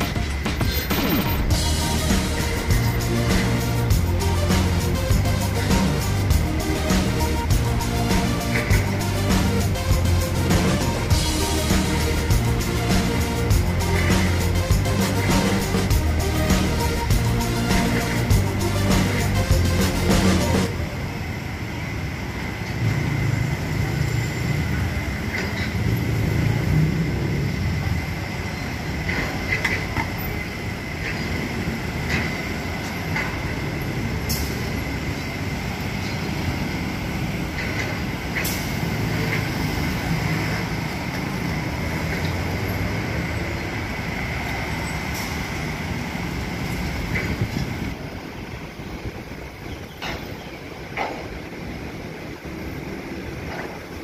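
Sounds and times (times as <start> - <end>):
thin high tone: 0.0 - 21.2
road traffic rumble: 0.0 - 54.0.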